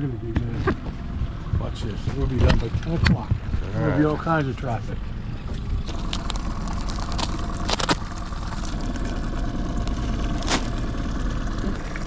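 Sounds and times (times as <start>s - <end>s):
outboard motor idling: 0.0s - 12.0s
plastic packaging crackling: 5.9s - 10.8s.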